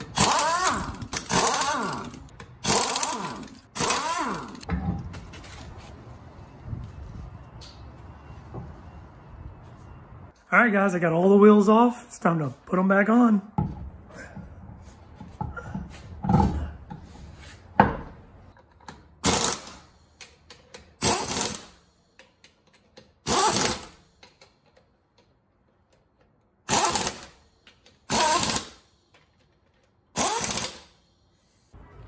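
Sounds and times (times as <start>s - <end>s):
pneumatic impact wrench bursts: 0.0s - 4.7s, 19.2s - 22.0s, 23.2s - 24.3s, 26.6s - 29.4s, 30.1s - 31.1s.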